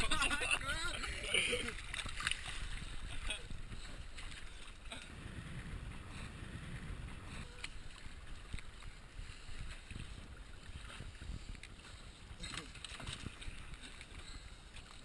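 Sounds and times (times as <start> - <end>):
water slapping against boat hull: 0.0 - 3.6, 12.4 - 14.2
wind rumbling on microphone: 0.0 - 15.0
light ticks and splashes: 1.0 - 5.1, 7.5 - 15.0.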